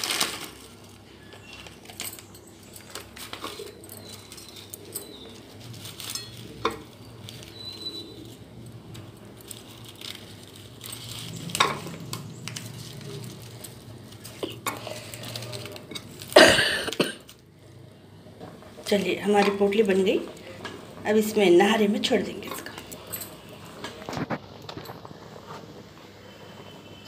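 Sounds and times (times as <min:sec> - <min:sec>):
rustling clatter: 0:00.0 - 0:17.4.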